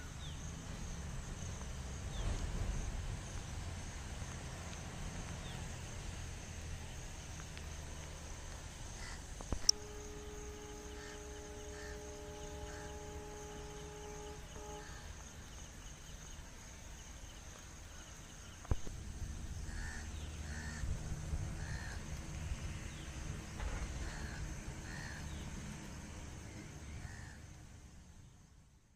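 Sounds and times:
steady low rumble: 0:00.0 - 0:28.5
crows cawing: 0:09.0 - 0:09.2, 0:10.9 - 0:12.0, 0:19.7 - 0:20.9, 0:21.6 - 0:22.0, 0:24.0 - 0:25.4
thin high whine: 0:09.0 - 0:16.0.

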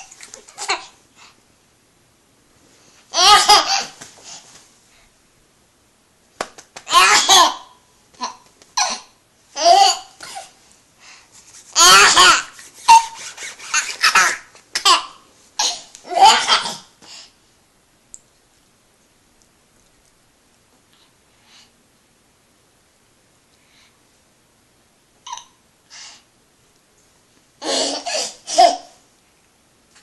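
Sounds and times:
baby laughing: 0:00.0 - 0:01.0, 0:03.1 - 0:04.0, 0:06.9 - 0:10.5, 0:11.8 - 0:16.8, 0:27.6 - 0:29.0.

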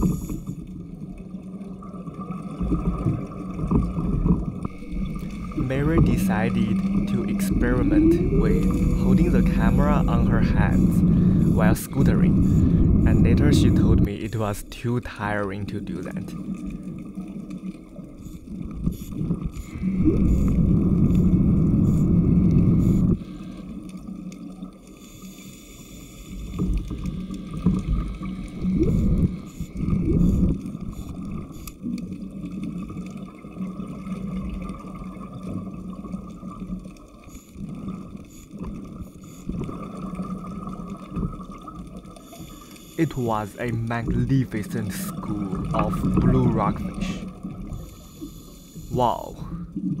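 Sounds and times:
low bubbling rumbles: 0:00.0 - 0:14.6, 0:15.5 - 0:23.3, 0:26.6 - 0:31.6, 0:43.0 - 0:47.8
underwater scooter motor whine: 0:00.0 - 0:50.0.

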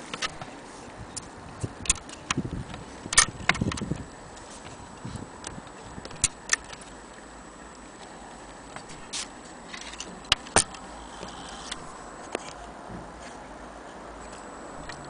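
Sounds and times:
clock movement clicking and knocking: 0:14.8 - 0:15.0.

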